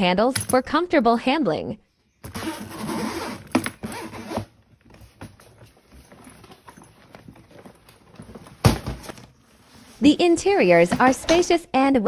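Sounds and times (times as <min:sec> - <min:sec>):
suitcase zipper rasping: 0:02.2 - 0:07.7.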